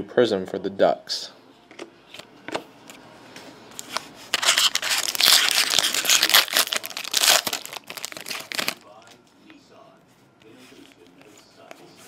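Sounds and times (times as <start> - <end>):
foil wrapper crackling: 4.3 - 9.1.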